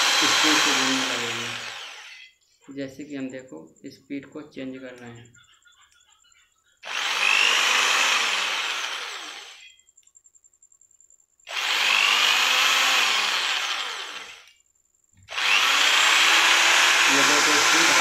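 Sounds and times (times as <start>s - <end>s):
electric drill spinning: 0.0s - 2.3s, 6.8s - 9.7s, 11.5s - 14.6s, 15.2s - 18.0s.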